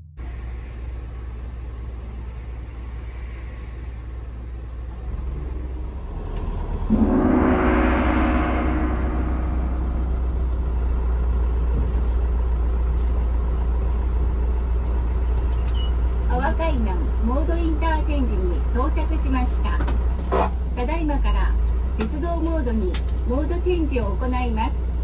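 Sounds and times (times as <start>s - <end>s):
vehicle engine hum: 0.0s - 25.0s
loud gong-like ringing tone: 6.8s - 11.6s.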